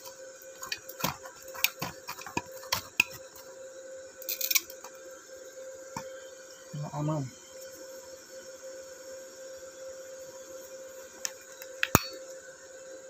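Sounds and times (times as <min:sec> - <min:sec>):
welding arc clicks and crackles: 0:00.0 - 0:03.5, 0:04.2 - 0:05.1, 0:11.0 - 0:12.4
faint welder hum: 0:00.0 - 0:13.0.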